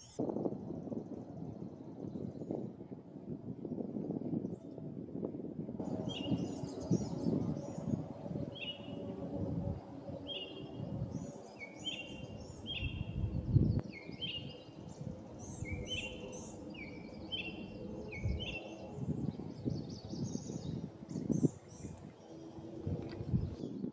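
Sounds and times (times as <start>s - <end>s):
low outdoor rumble: 4.8s - 23.9s
songbird chirping: 5.8s - 23.8s.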